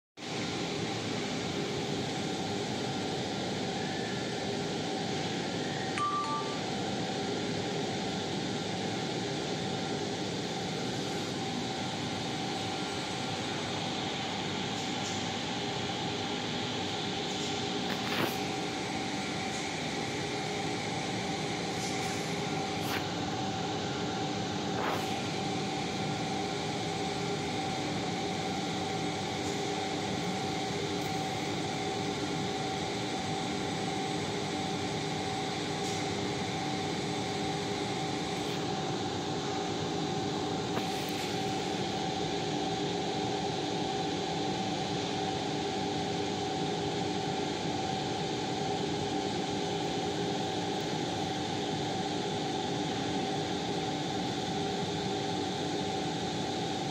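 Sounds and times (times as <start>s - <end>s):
machinery hum and hiss: 0.2s - 56.9s
held tones: 6.0s - 6.6s.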